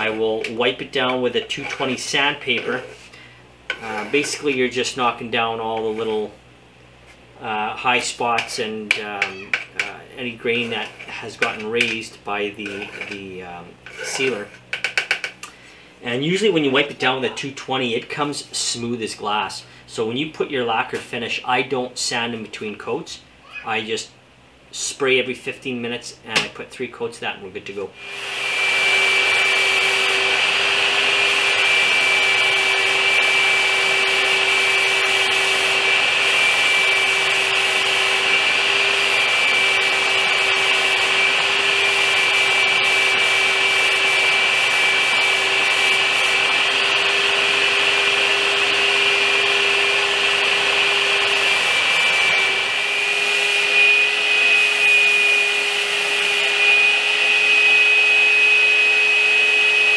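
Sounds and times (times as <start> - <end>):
compressed air hose whine: 0.0 - 4.6, 28.0 - 59.9.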